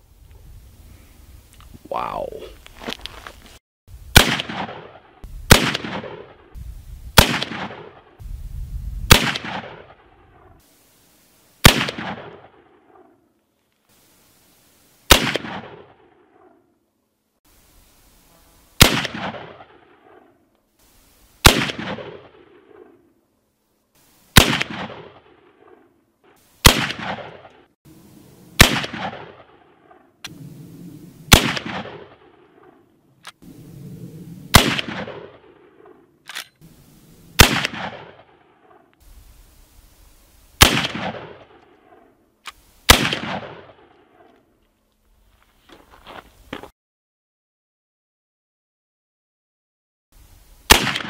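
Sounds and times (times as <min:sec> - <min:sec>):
rifle shots echoing: 0:04.1 - 0:06.5, 0:07.2 - 0:08.2, 0:09.1 - 0:10.5, 0:11.6 - 0:13.1, 0:15.1 - 0:16.6, 0:18.8 - 0:20.4, 0:21.4 - 0:23.0, 0:24.4 - 0:25.9, 0:26.6 - 0:27.7, 0:28.6 - 0:33.6, 0:34.4 - 0:36.6, 0:37.3 - 0:38.9, 0:40.6 - 0:42.1, 0:42.9 - 0:44.3, 0:50.7 - 0:51.0
rifle lever clicks: 0:36.3 - 0:36.6.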